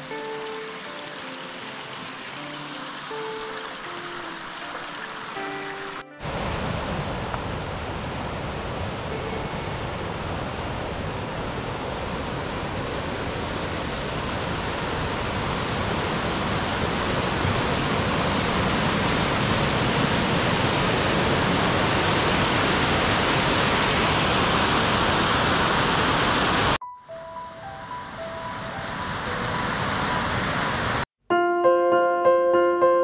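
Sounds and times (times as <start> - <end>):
soft piano music: 0.0 - 6.3, 9.1 - 11.1, 26.8 - 33.0
rushing water: 0.0 - 31.1.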